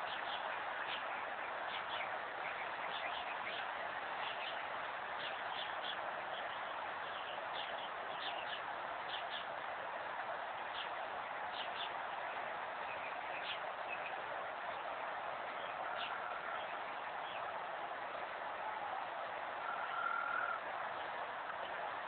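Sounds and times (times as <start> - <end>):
small birds chirping: 0.0 - 9.5, 10.6 - 14.8
steady outdoor hiss: 0.0 - 22.0.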